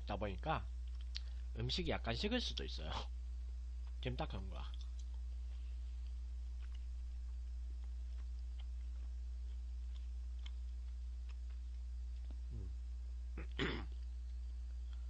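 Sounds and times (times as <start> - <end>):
low electrical hum: 0.0 - 15.0
mouth clicks: 0.8 - 1.4
person chewing: 4.7 - 12.8
murmured voice: 12.5 - 12.8.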